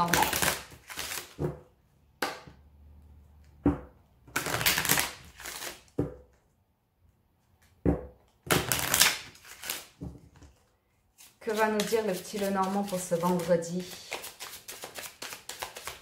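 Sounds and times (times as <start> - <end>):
cards being shuffled: 0.0 - 1.5, 4.3 - 5.9, 8.6 - 16.0.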